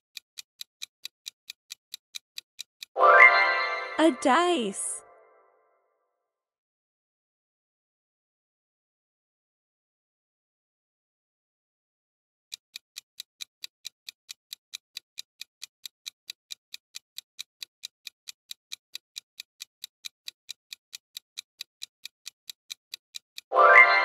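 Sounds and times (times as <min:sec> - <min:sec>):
clock ticking: 0:00.1 - 0:03.0, 0:12.5 - 0:24.0.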